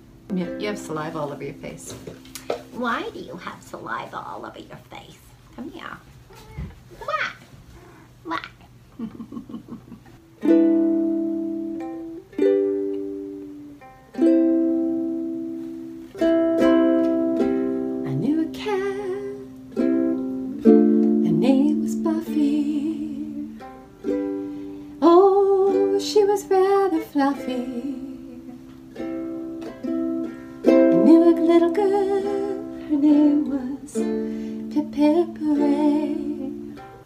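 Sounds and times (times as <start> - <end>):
ukulele strummed chords: 0.0 - 2.8, 10.2 - 37.0.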